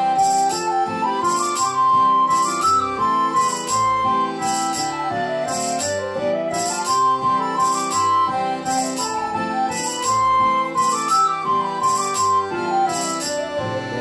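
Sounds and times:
instrumental melody line: 0.0s - 14.0s
jingling beat: 0.0s - 14.0s
steady accompaniment: 0.0s - 14.0s.

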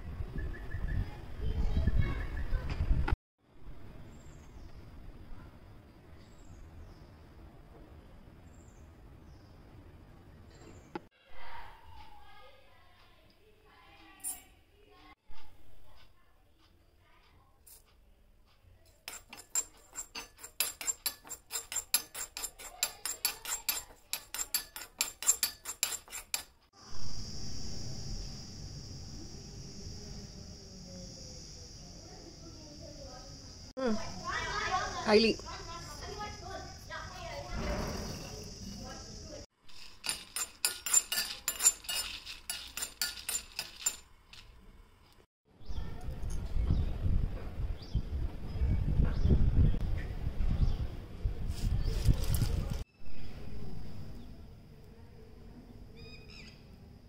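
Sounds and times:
spoon clinking on metal vessel: 19.1s - 26.5s, 39.7s - 44.5s.

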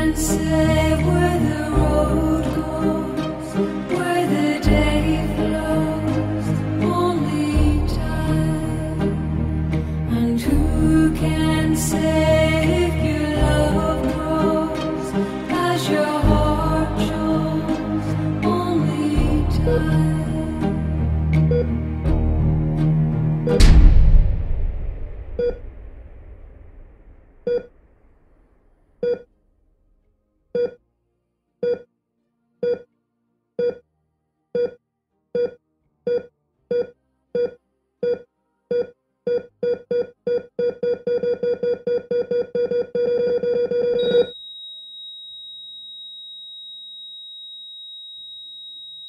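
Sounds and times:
low rumble: 18.7s - 28.8s
electronic beeps: 27.5s - 27.7s, 35.4s - 46.0s.

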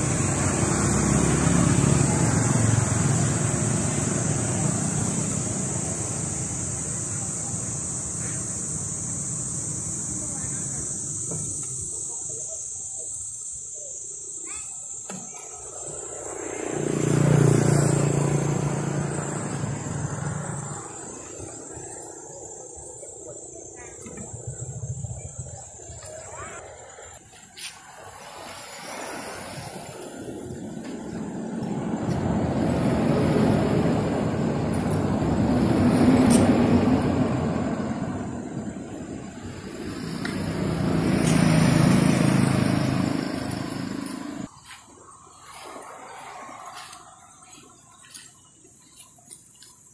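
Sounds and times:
vehicle passing by: 0.0s - 11.2s, 15.6s - 23.1s, 27.6s - 48.1s.

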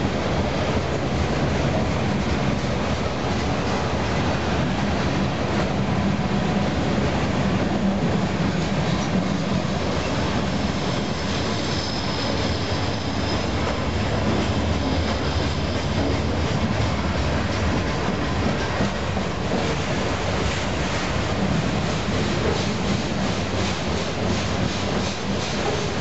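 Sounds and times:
freight train rumbling past: 0.0s - 26.0s
high-pitched wheel squeal: 10.8s - 13.8s.

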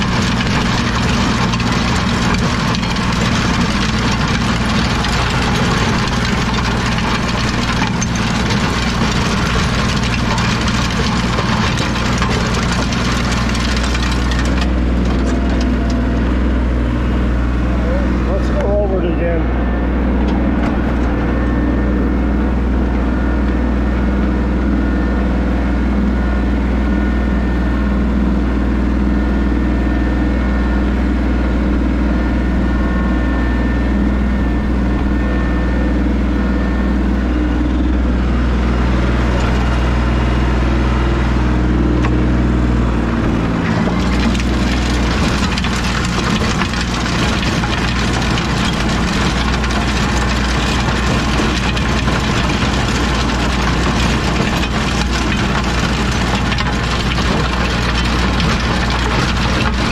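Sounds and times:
rototiller tines grinding soil: 0.0s - 16.7s, 43.2s - 59.9s
tractor diesel engine running: 0.0s - 59.9s.

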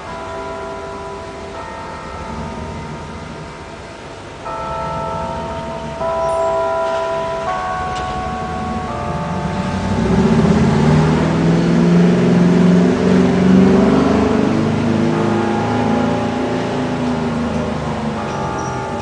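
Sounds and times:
bell chimes: 0.0s - 19.0s
vehicle engine revving: 8.5s - 18.3s.

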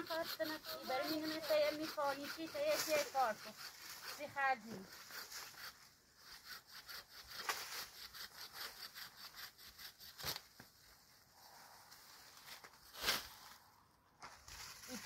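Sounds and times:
rhythmic scraping strokes: 0.0s - 10.4s.

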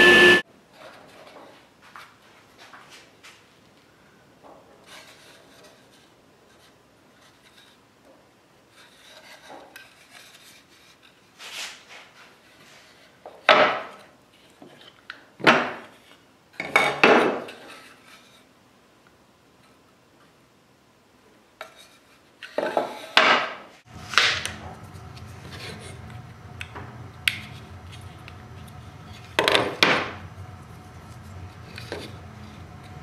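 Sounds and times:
wood rubbing and scraping: 23.9s - 33.0s.

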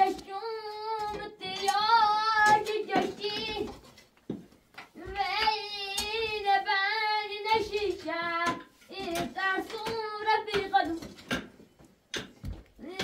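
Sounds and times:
high-pitched voice singing: 12.8s - 13.0s.

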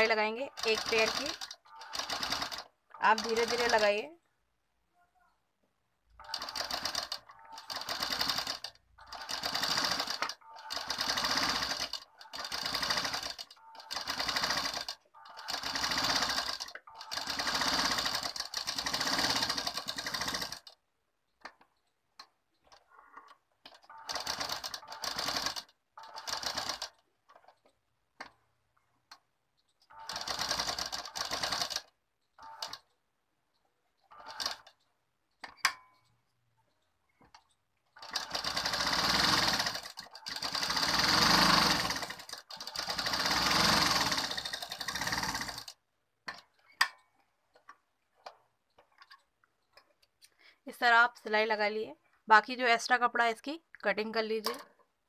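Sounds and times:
sewing machine stitching: 0.0s - 4.0s, 6.2s - 20.8s, 22.6s - 27.7s, 29.8s - 33.0s, 34.0s - 34.9s, 37.2s - 45.8s.

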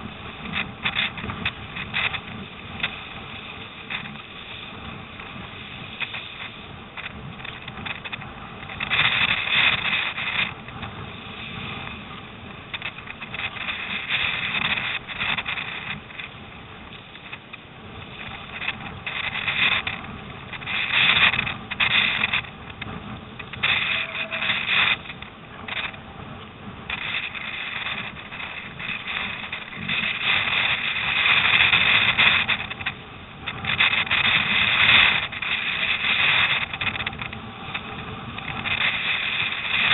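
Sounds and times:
water splashing against a hull: 0.0s - 39.9s
wind rumble on microphone: 0.0s - 39.9s.

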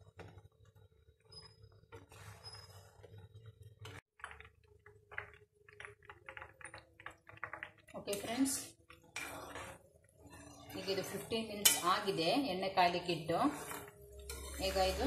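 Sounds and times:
spatula stirring in pan: 1.8s - 15.0s
oil crackling: 3.8s - 10.3s.

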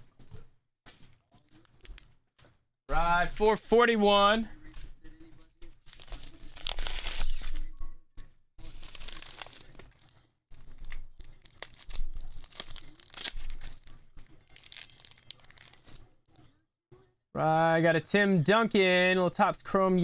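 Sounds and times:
packaging rustling and crinkling: 5.9s - 7.6s, 8.6s - 16.1s
padded mailer tearing open: 6.3s - 7.6s.

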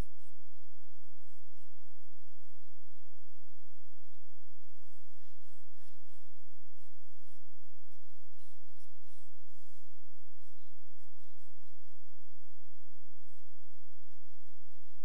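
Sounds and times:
low electrical hum: 0.0s - 15.0s
stylus scratching on tablet: 4.9s - 12.0s.

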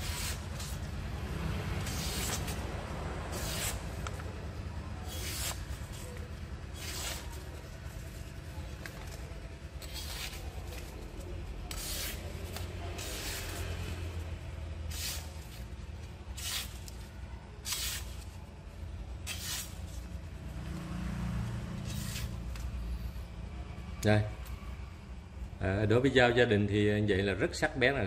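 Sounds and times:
knife scraping on grinding stone: 11.7s - 12.2s.

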